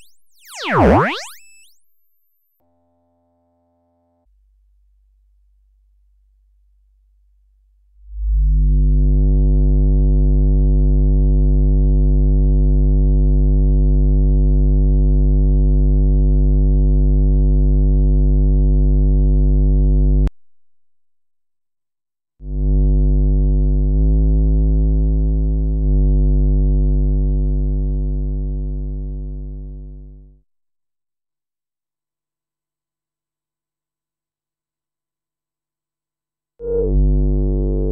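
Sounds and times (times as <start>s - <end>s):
low buzzy synthesizer note: 0.0s - 1.8s, 8.1s - 16.8s, 36.6s - 37.9s.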